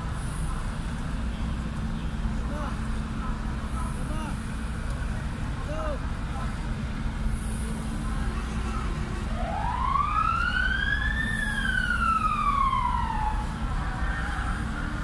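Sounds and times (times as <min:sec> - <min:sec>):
siren wailing: 0:09.3 - 0:14.7.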